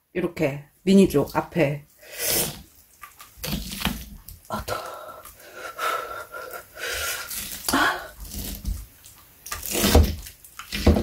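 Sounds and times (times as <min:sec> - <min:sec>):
wet squishing of meat: 0:02.4 - 0:04.5.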